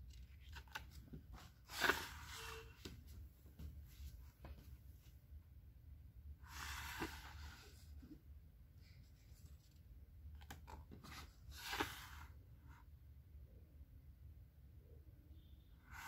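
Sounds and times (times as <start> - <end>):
book pages turning: 0.0 - 3.0, 6.5 - 7.8, 10.4 - 12.4.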